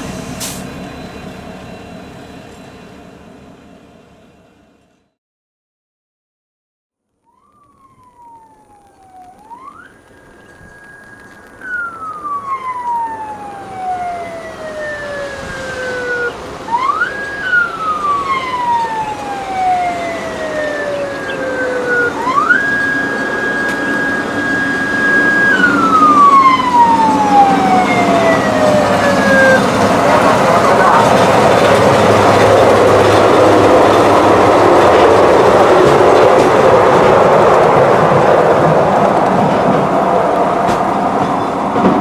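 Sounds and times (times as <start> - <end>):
railcar running noise: 0.0 - 5.2, 7.6 - 42.0
siren wailing: 7.3 - 38.2.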